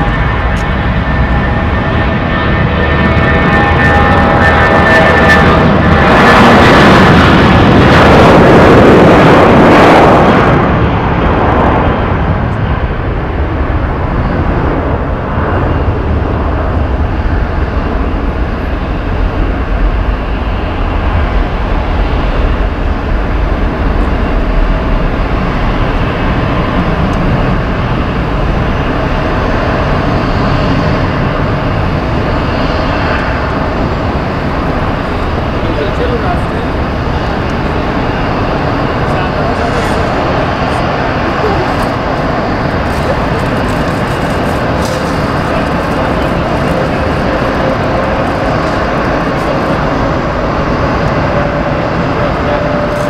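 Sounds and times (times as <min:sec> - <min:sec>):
jet engines rumbling: 0:00.0 - 0:53.0.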